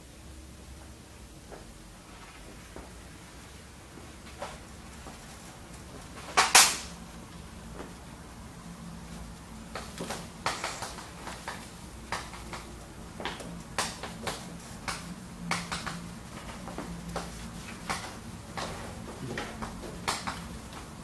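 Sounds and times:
low steady hum: 0:00.0 - 0:21.0
chalk tapping and scraping: 0:09.7 - 0:21.0.

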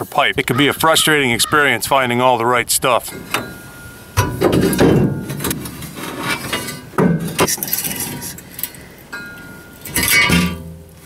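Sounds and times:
tailpipe clanking and scraping: 0:02.8 - 0:11.0
metal knocks: 0:03.1 - 0:07.6, 0:09.1 - 0:11.0.

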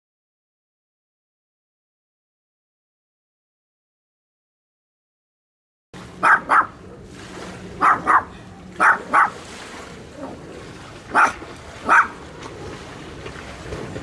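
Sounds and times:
small dog barking: 0:06.2 - 0:06.8, 0:07.8 - 0:09.4, 0:11.1 - 0:12.2.

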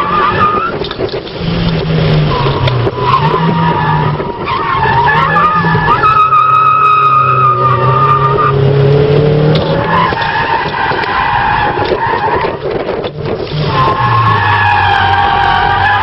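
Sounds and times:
tyres squealing: 0:02.2 - 0:08.8, 0:13.5 - 0:16.0
car engine running hard: 0:07.4 - 0:16.0.

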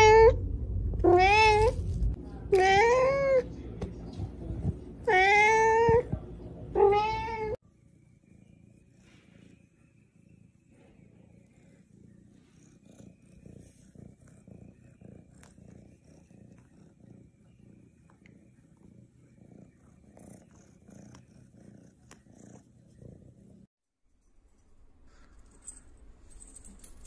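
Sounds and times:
cat purring: 0:07.7 - 0:23.7.

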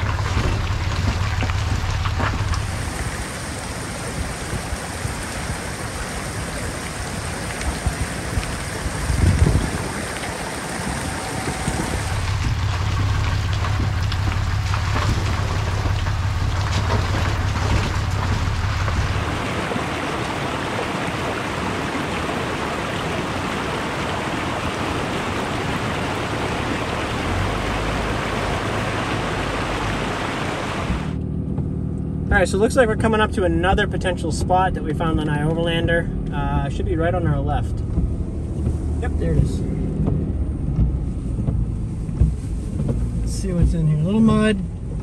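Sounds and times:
loud low rumble: 0:00.0 - 0:05.8, 0:07.0 - 0:43.8
running water rushing: 0:00.0 - 0:31.2, 0:36.6 - 0:44.4
tyres on wet gravel: 0:00.0 - 0:31.2
truck engine hum: 0:00.0 - 0:45.0.

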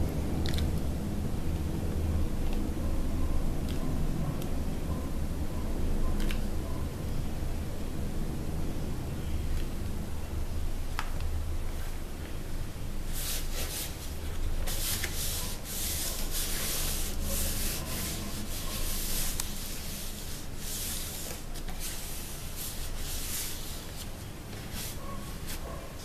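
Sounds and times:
steady low hum: 0:00.0 - 0:26.0
hands rubbing foam sheet: 0:13.1 - 0:26.0.

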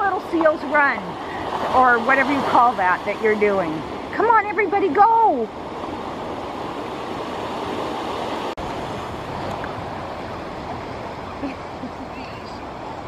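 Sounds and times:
waves washing onto beach: 0:00.0 - 0:13.0.

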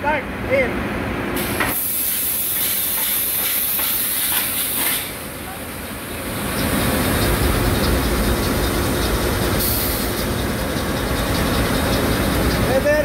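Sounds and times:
short hiss: 0:01.4 - 0:05.2
diesel engine deep rumble: 0:04.5 - 0:13.0.

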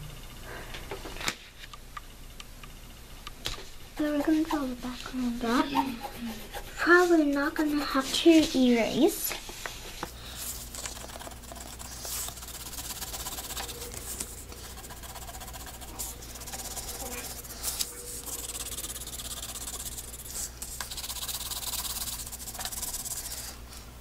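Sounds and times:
low steady hum: 0:00.0 - 0:24.0
pencil scribbling on paper plate: 0:04.0 - 0:04.8, 0:05.4 - 0:08.6, 0:10.2 - 0:23.6.

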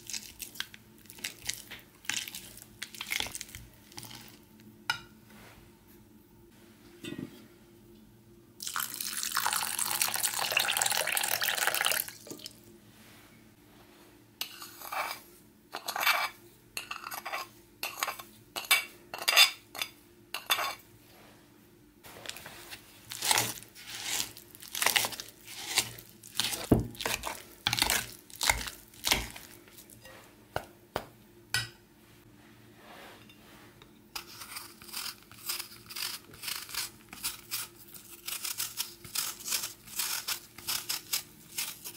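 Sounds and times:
potato masher scraping ceramic bowl: 0:14.4 - 0:15.2, 0:23.2 - 0:29.4
knife peeling an apple: 0:22.7 - 0:29.4, 0:34.2 - 0:41.9.

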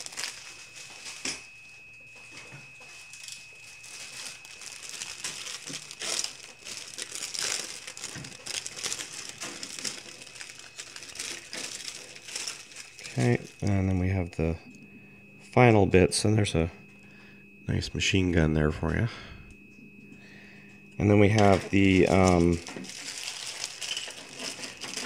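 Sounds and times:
plastic bag crinkling: 0:00.0 - 0:01.5, 0:03.0 - 0:14.0, 0:21.4 - 0:25.0.

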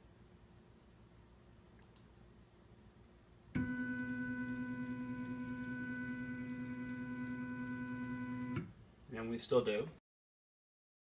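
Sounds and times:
printer stepper motors whining: 0:03.6 - 0:08.6.

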